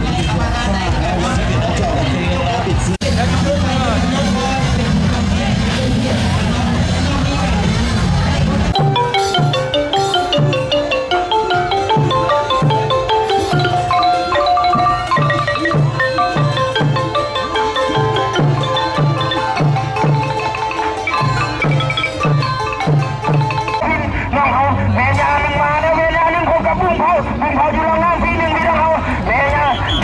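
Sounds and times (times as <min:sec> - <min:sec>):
low drum beat: 0:08.8 - 0:23.8
xylophone melody: 0:08.8 - 0:24.0.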